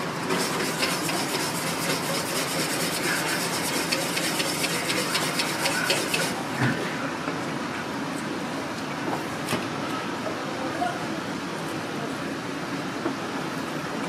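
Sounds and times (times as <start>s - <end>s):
whisk beating batter in metal bowl: 0.3s - 6.4s.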